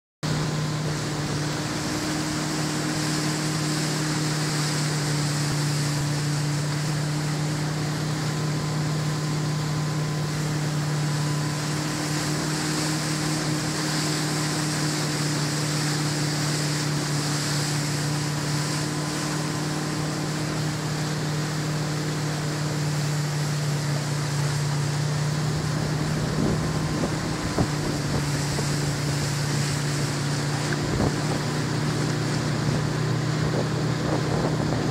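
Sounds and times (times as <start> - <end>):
boat engine humming: 0.2 - 34.9
water rushing: 0.2 - 34.9
wind buffeting microphone: 25.5 - 34.9.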